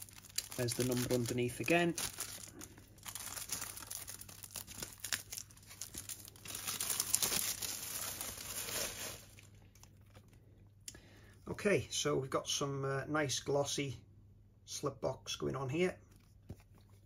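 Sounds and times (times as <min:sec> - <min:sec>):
plastic wrap crinkling: 0:00.0 - 0:10.4.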